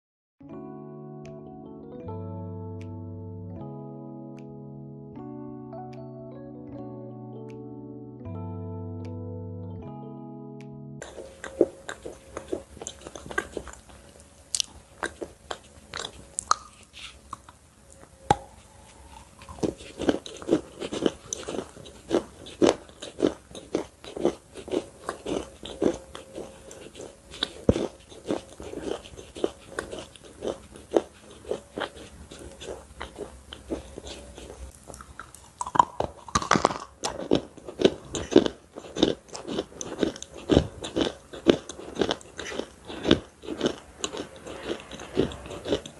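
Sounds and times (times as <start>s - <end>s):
faint steady hum: 0.4s - 45.9s
crunchy chewing: 11.0s - 45.9s.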